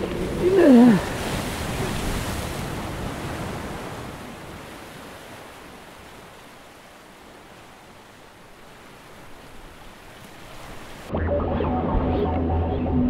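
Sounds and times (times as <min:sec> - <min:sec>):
surf washing against rocks: 0:00.0 - 0:11.1.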